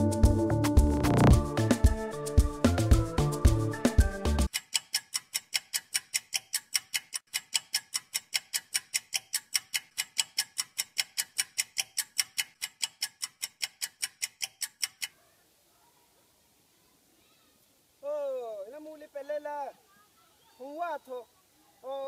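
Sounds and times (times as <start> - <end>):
music track: 0.0 - 4.5
sharp even ticking: 0.8 - 1.4, 4.5 - 15.2.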